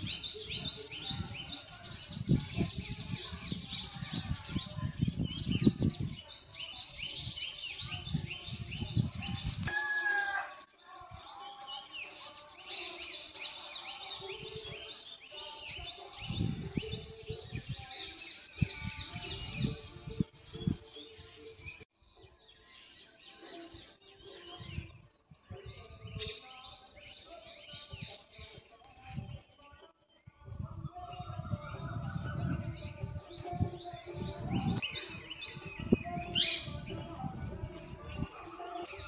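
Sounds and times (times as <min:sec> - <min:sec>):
small birds chirping: 0:00.0 - 0:39.0.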